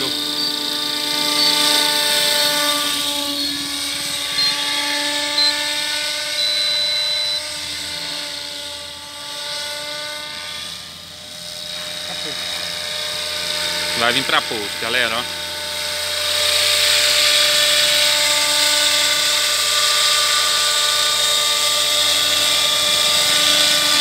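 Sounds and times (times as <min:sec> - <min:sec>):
rc helicopter motor whine: 0:00.0 - 0:24.0
short high beeps: 0:04.3 - 0:04.6, 0:05.4 - 0:05.7, 0:06.4 - 0:07.4.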